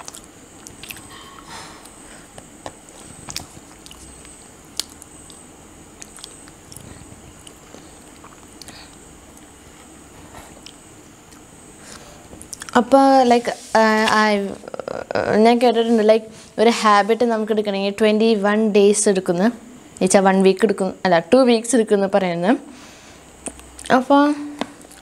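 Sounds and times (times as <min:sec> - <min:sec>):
chewing food: 0:00.0 - 0:01.4, 0:02.6 - 0:05.4, 0:06.0 - 0:11.5, 0:12.4 - 0:12.8.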